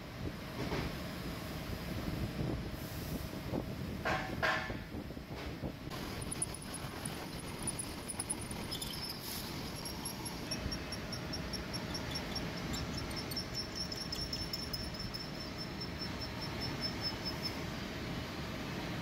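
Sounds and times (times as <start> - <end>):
drilling machine hum: 5.9 - 17.4
drill bit squeaking: 5.9 - 17.6.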